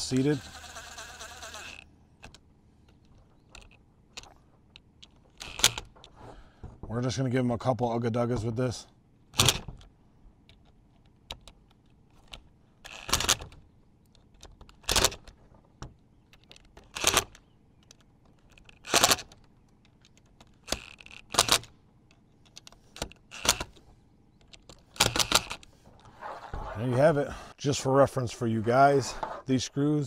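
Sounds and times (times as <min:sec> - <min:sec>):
light clicks of parts handled: 0:09.7 - 0:26.2.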